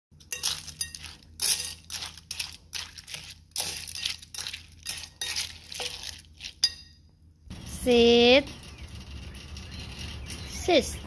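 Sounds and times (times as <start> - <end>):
dog food stirred in glass bowl: 0.2 - 7.0
kibble rattling against glass: 8.2 - 11.0.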